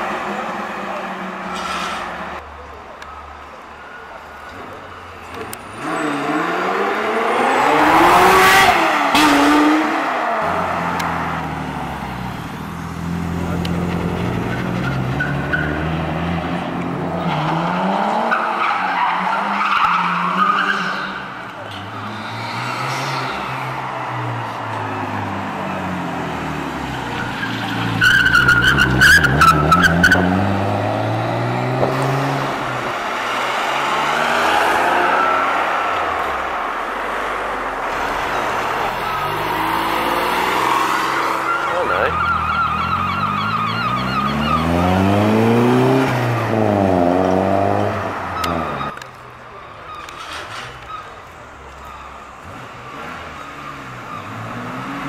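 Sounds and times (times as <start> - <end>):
car engine revving: 5.3 - 49.0
tyre squeal: 27.0 - 30.4, 49.7 - 52.2.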